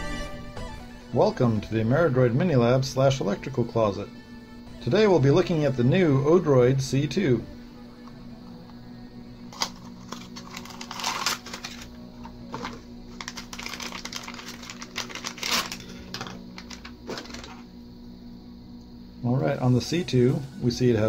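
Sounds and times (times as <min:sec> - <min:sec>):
plastic bag crinkling: 0:09.5 - 0:17.7.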